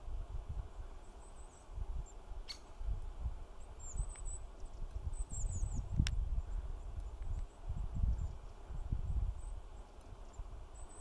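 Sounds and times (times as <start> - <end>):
high thin bird calls: 1.2 - 2.8.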